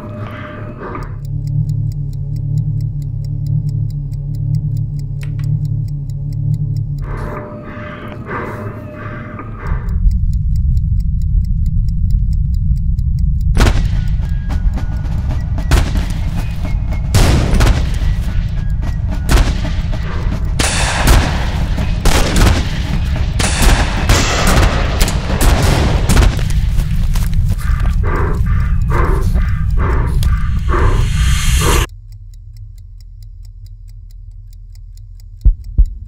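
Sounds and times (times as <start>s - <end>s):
heavy low rumble: 0.0s - 31.9s
fast even ticking: 0.0s - 36.0s
sharp bangs and hits: 13.6s - 31.9s.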